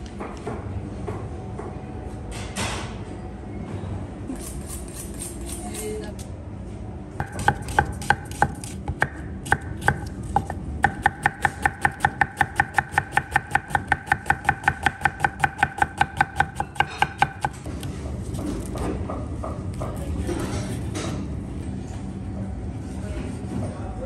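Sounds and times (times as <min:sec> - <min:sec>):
knife chopping on wooden board: 0:07.2 - 0:17.8.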